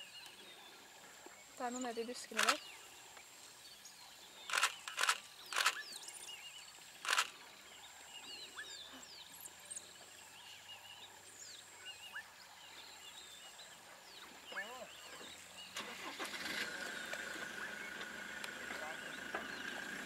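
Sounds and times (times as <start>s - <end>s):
sharp clicks: 2.3s - 2.7s, 4.5s - 5.8s, 7.1s - 7.3s.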